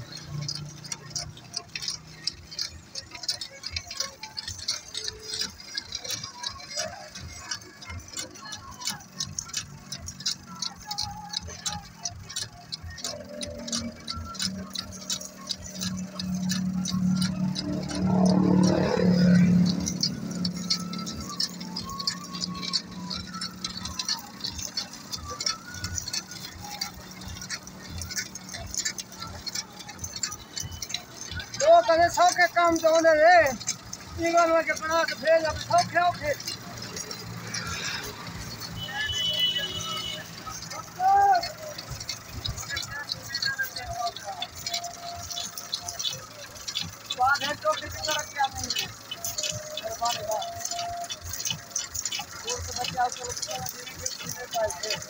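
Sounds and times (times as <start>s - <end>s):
faint low engine hum: 0.0s - 55.0s
light metal clinks and rattles: 0.0s - 55.0s
rapid mechanical ticking and clicking: 0.0s - 55.0s.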